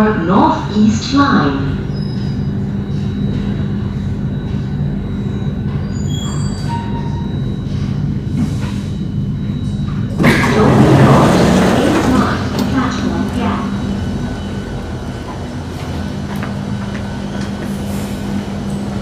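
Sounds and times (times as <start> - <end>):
train equipment humming: 0.0 - 19.0.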